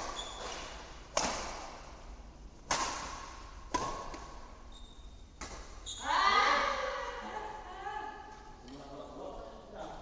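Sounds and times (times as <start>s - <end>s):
rackets hitting shuttlecock: 0.0s - 2.0s, 2.6s - 4.6s, 5.4s - 5.8s.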